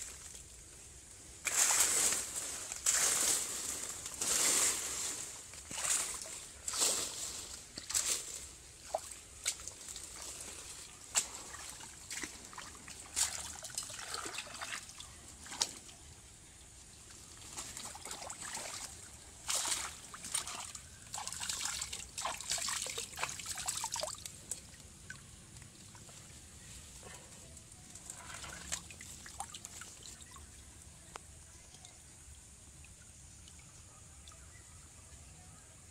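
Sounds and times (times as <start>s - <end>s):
water trickling and splashing: 1.4s - 16.2s, 16.9s - 34.5s
wet squelching in mud: 8.8s - 15.8s, 17.4s - 24.9s, 27.9s - 30.4s.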